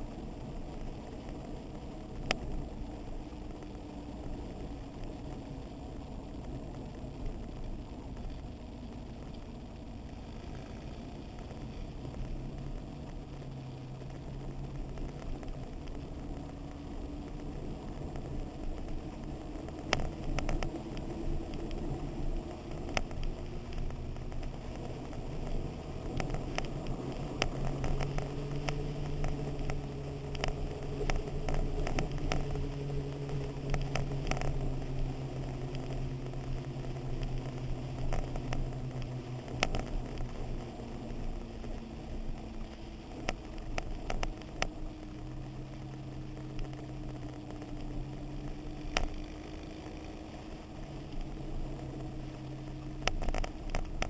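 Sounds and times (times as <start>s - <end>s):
sharp clicks and knocks: 53.0s - 54.0s.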